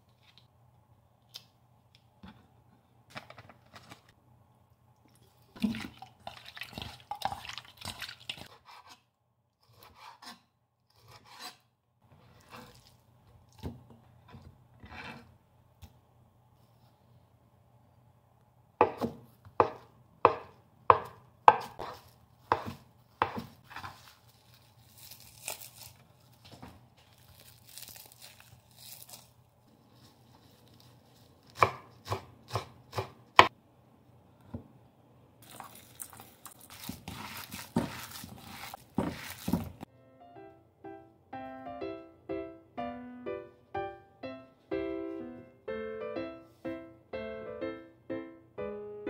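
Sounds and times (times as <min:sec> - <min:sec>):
rustling and handling noise: 0:01.3 - 0:04.2, 0:12.0 - 0:14.5, 0:21.8 - 0:31.6, 0:35.4 - 0:39.9
knife chopping on wooden board: 0:18.8 - 0:23.9, 0:31.6 - 0:33.5, 0:36.8 - 0:39.8
light music: 0:39.9 - 0:49.0.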